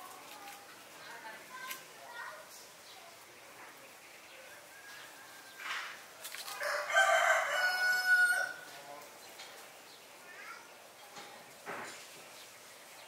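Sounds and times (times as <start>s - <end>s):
rooster crowing: 6.6s - 8.7s.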